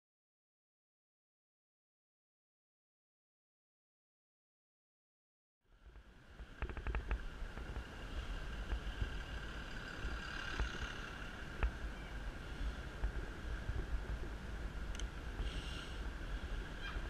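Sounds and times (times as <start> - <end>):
faint steady whine: 5.7 - 17.0
road and wind rumble: 5.7 - 17.0
bus running alongside: 5.8 - 17.0.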